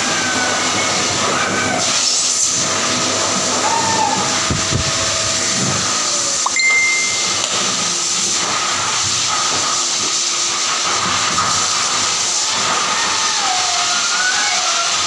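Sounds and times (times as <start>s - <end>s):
blower dryer rushing air: 0.0s - 15.0s
short high tone: 6.4s - 7.8s.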